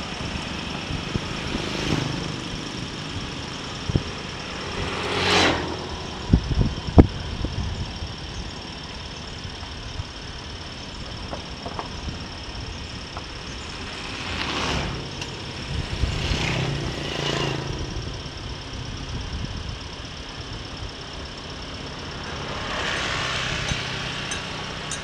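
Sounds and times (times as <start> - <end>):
scooters passing: 0.0 - 7.4, 13.3 - 18.7, 21.2 - 25.0
motorcycle engine and road noise: 0.0 - 25.0.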